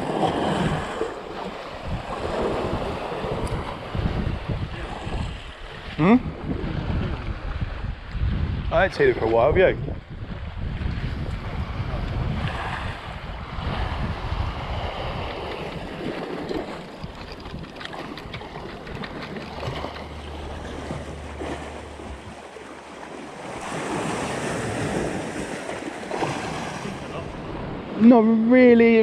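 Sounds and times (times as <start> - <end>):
sea waves washing against rocks: 0.0 - 5.8, 10.1 - 28.6
wind buffeting microphone: 0.0 - 29.0
low steady hum: 18.0 - 23.5.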